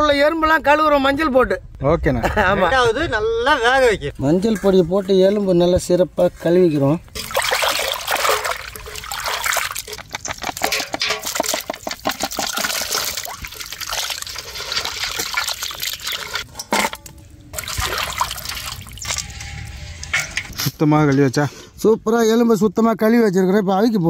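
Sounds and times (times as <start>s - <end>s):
water sloshing in a metal basin: 7.1s - 20.6s
hand rubbing bones in water: 7.2s - 16.5s.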